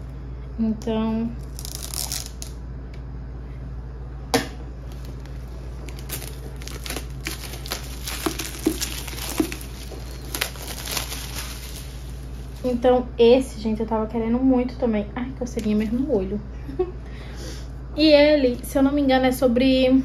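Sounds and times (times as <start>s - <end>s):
book being handled: 4.9s - 12.7s
packaging rustling: 4.9s - 12.8s.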